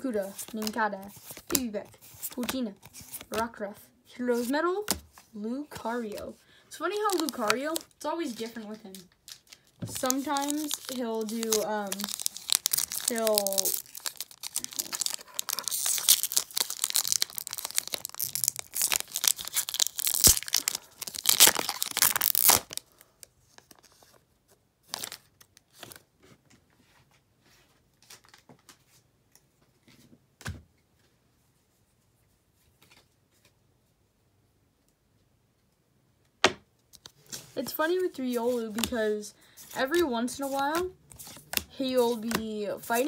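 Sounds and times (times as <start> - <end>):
foil wrapper tearing and crinkling: 6.9 - 23.0
cards tapping and clicking: 39.9 - 42.5.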